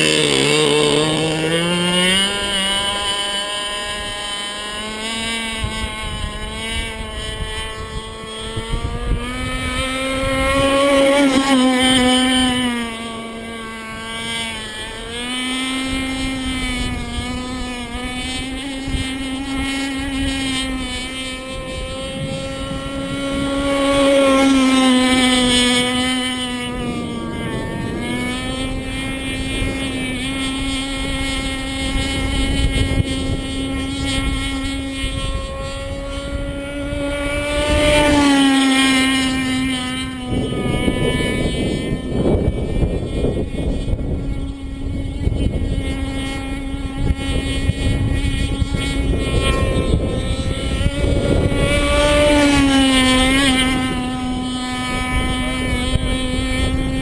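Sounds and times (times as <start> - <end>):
model boat motor whining: 0.0 - 57.0
wind rumbling on microphone: 0.0 - 57.0.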